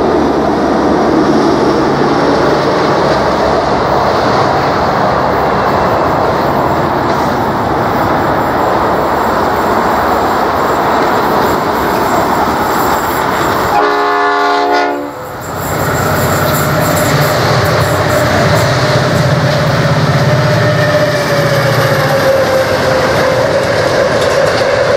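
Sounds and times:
locomotive horn blast: 13.7s - 15.3s.

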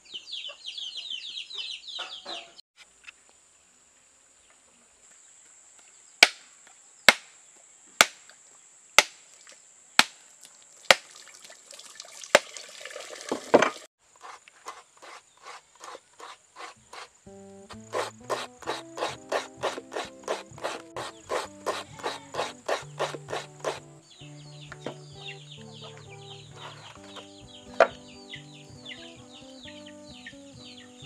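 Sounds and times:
machete striking coconut: 6.2s - 6.5s, 7.1s - 7.3s, 8.0s - 8.3s, 9.0s - 9.2s, 10.0s - 10.2s, 10.9s - 11.1s, 17.7s - 23.8s
coconut scraped on grater: 14.2s - 17.1s, 17.9s - 23.8s
quick high chirps: 17.7s - 24.2s.

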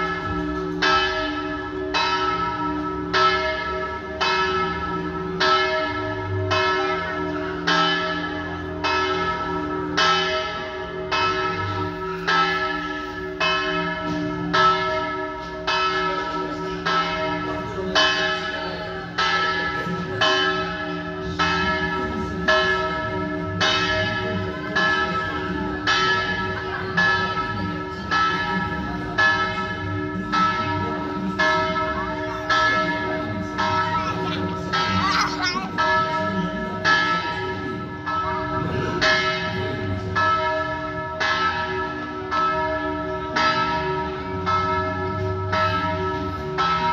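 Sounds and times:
church bells ringing: 0.0s - 46.9s.

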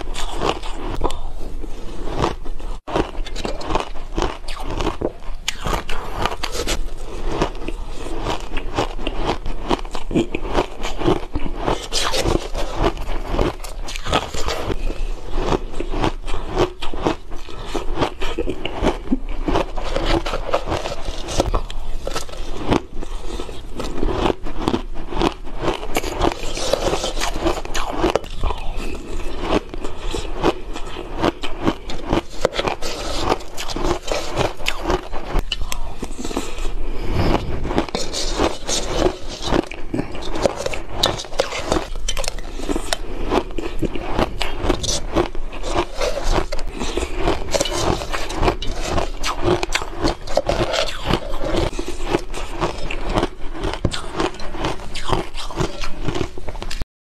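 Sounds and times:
ice crunching as chewed: 0.0s - 56.8s
metal spoon scraping metal bowl: 26.0s - 30.1s, 31.9s - 36.6s, 37.2s - 43.0s, 43.8s - 56.6s.

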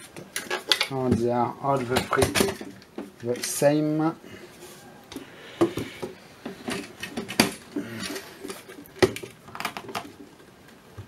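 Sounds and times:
metal boxes knocking and scraping: 0.4s - 3.2s, 5.6s - 10.2s.

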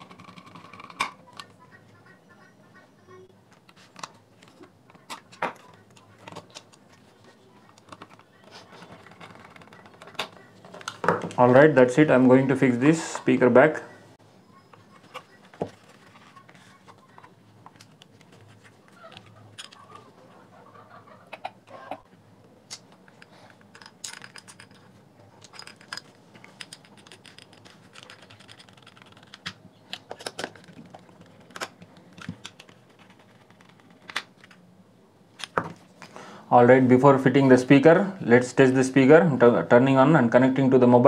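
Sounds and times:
plastic parts clicking and scraping: 0.0s - 1.6s, 3.6s - 11.4s, 15.0s - 20.0s, 22.7s - 34.6s.

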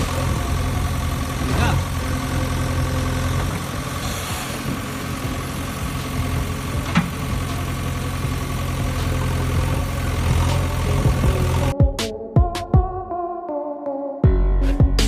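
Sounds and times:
engine idling: 0.0s - 11.7s.

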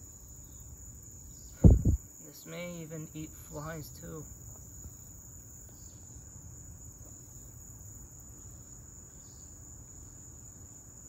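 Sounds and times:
high-pitched insect trill: 0.0s - 11.0s
low rumble: 1.6s - 2.0s.

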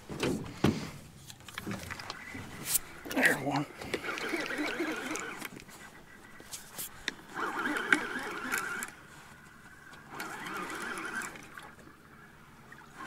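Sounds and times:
fishing reel being cranked: 3.9s - 5.8s, 7.3s - 9.0s, 10.0s - 11.8s.

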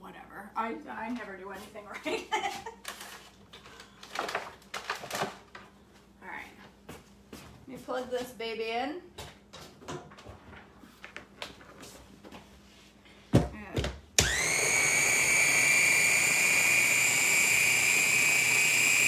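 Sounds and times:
food chopper motor whine: 14.2s - 19.0s.

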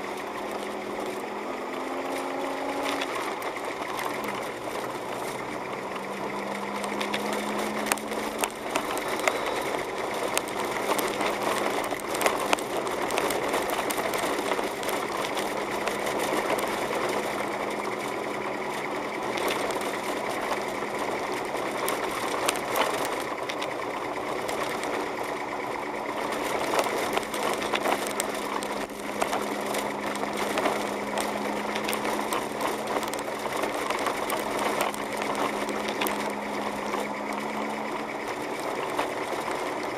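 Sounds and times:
car engine hum: 0.0s - 39.9s
clicks and crackles from snow: 0.0s - 39.9s.

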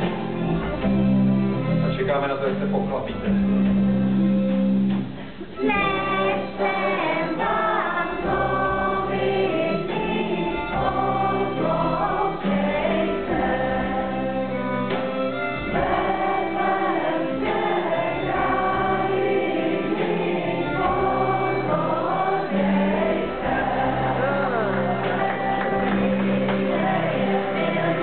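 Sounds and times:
boy singing lead: 5.6s - 14.6s, 20.0s - 26.2s
voices singing together: 5.6s - 28.0s
electric guitar: 24.0s - 28.0s.

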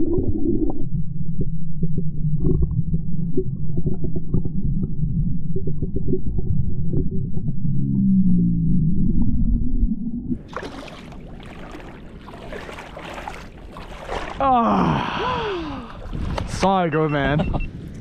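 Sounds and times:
low hum: 0.0s - 10.5s
underwater rumble and sloshing: 0.0s - 14.5s, 15.6s - 16.7s.

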